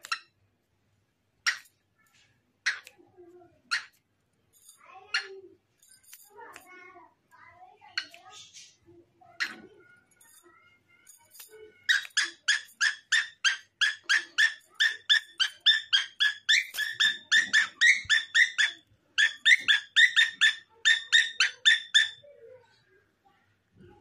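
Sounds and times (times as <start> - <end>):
parrot chirping: 0.0 - 0.3, 1.4 - 1.7, 2.6 - 2.9, 3.7 - 4.0, 11.8 - 22.3.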